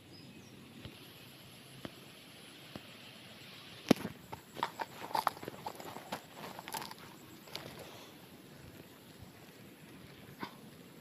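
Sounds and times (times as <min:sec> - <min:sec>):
footsteps crunching on dry grass: 0:03.9 - 0:10.4.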